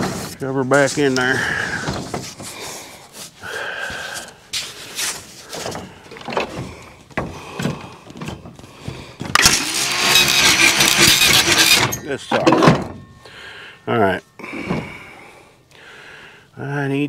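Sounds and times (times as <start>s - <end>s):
knocks and clunks of handling: 1.6s - 2.6s, 5.4s - 9.5s, 10.8s - 13.2s, 14.6s - 15.1s.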